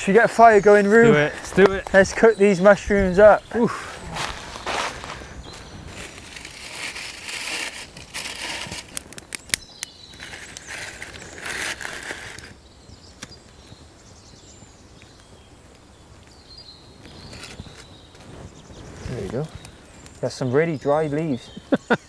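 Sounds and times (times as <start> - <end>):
dry leaves crunching: 4.0 - 9.0
twigs snapping: 4.2 - 12.6, 13.2 - 13.4.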